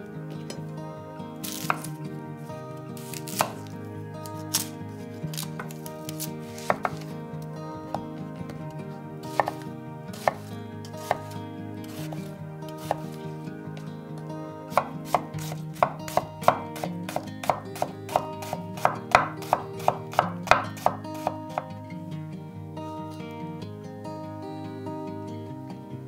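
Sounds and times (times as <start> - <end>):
knife chopping onion on wooden board: 1.5 - 1.9, 3.3 - 3.6, 5.6 - 7.1, 9.3 - 9.6, 10.2 - 12.2, 12.8 - 13.1, 14.7 - 21.7.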